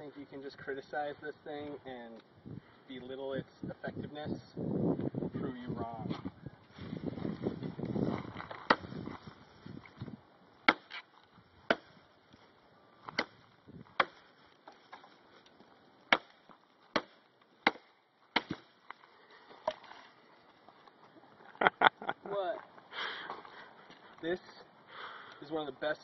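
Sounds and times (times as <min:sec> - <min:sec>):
machete chopping into log: 0:08.7 - 0:08.9, 0:10.7 - 0:11.0, 0:11.7 - 0:11.9, 0:13.1 - 0:13.4, 0:14.0 - 0:14.2, 0:16.1 - 0:18.7.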